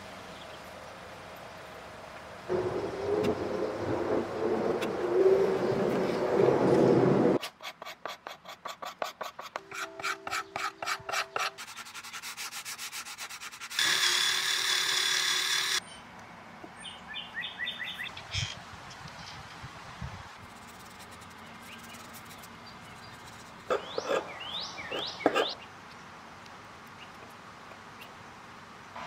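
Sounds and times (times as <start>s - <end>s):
sanding block rasping on wood: 7.4s - 15.8s.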